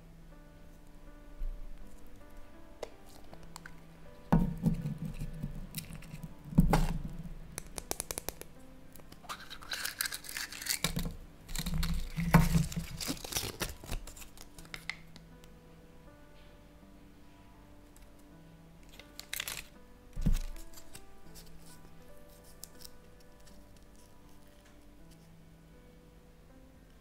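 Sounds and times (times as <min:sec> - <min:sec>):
quiet background music: 0:00.0 - 0:27.0
plastic capsule prying open: 0:02.8 - 0:15.0, 0:18.9 - 0:21.0
chocolate egg snapping: 0:02.8 - 0:15.2, 0:18.8 - 0:21.6
paper crinkling: 0:09.0 - 0:15.0, 0:18.8 - 0:25.3.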